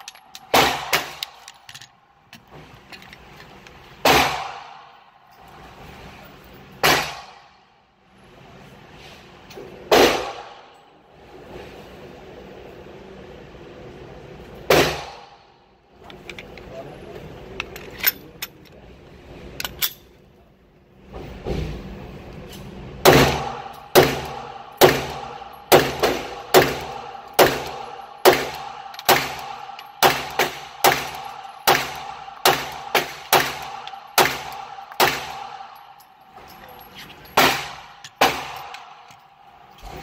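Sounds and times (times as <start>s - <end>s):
gun handling clicks: 0.0s - 3.8s
pistol shots: 0.4s - 1.4s, 4.0s - 4.9s, 6.8s - 7.4s, 14.7s - 15.3s, 23.0s - 35.8s, 37.4s - 39.0s.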